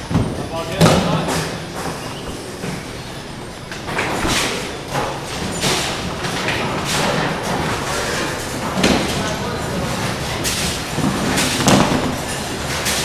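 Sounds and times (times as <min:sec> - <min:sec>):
bowling balls rolling on lanes: 0:00.0 - 0:13.0
bowling pins crashing: 0:03.8 - 0:13.0.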